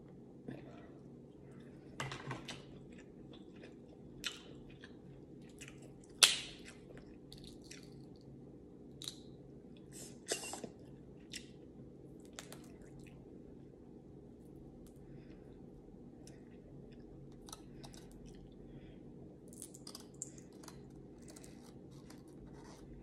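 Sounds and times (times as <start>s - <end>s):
chewing and mouth smacks: 2.6s - 8.3s.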